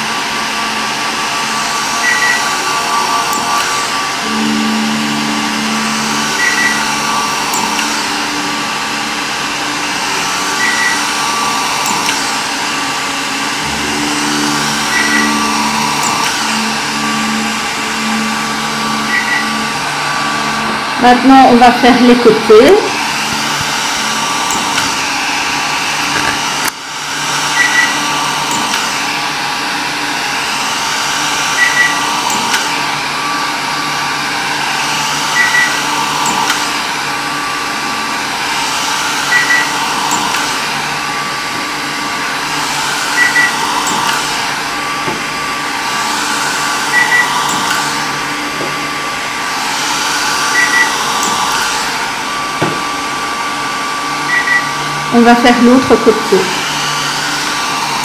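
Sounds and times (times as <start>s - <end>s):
machine fan noise: 0.0s - 58.0s
short beeps: 2.0s - 2.6s, 3.4s - 8.1s, 10.6s - 11.1s, 13.7s - 20.7s, 27.5s - 28.7s, 31.6s - 32.5s, 35.4s - 35.8s, 43.2s - 44.0s, 46.9s - 47.8s, 50.5s - 51.0s, 54.3s - 54.7s.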